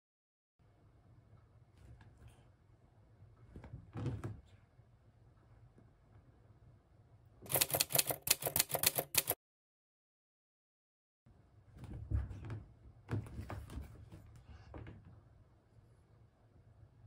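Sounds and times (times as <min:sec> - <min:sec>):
typewriter keys clacking: 0:07.5 - 0:09.4.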